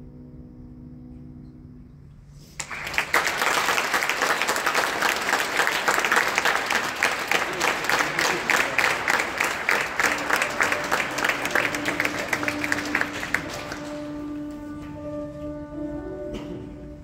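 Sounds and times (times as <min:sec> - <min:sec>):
audience applause: 0:02.6 - 0:14.7.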